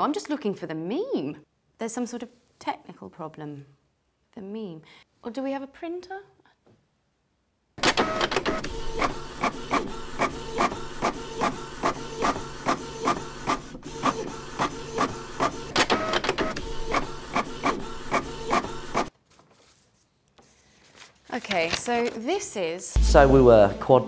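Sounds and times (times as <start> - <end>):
printer printing: 7.8 - 19.1.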